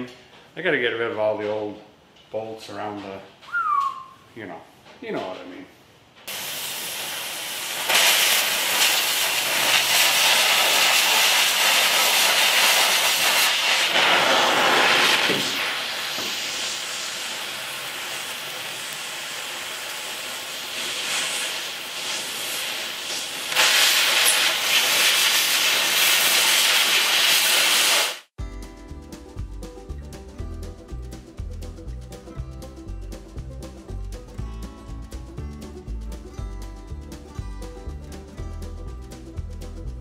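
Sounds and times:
cutting torch hissing: 0:06.3 - 0:28.3.

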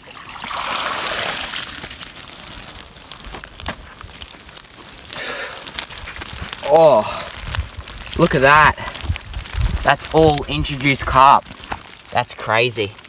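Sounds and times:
water splashing and pouring off net: 0:00.0 - 0:03.0
net dragged over dry grass: 0:00.2 - 0:04.2.

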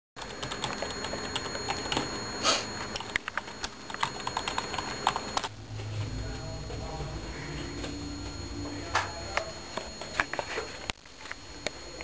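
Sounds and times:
computer keyboard typing: 0:00.2 - 0:02.2, 0:02.8 - 0:05.6.

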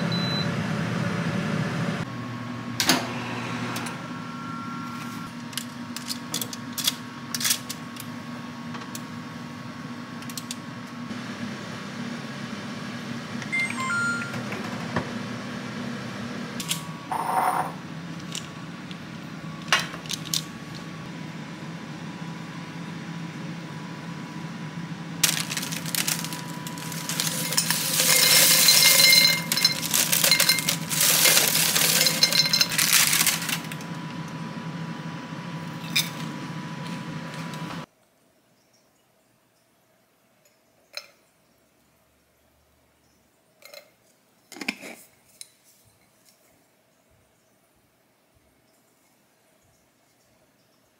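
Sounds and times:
dishes and utensils clinking: 0:25.3 - 0:33.6.

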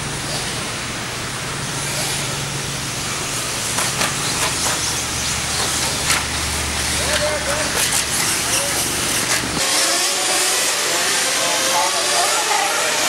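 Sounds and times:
rc buggies racing: 0:03.8 - 0:13.0.

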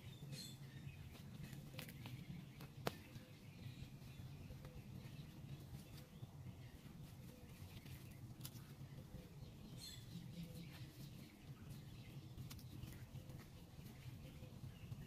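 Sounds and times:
faint bird chirp: 0:00.0 - 0:15.0
soft clicks and rustles: 0:01.1 - 0:03.3, 0:06.9 - 0:09.1, 0:10.4 - 0:15.0.

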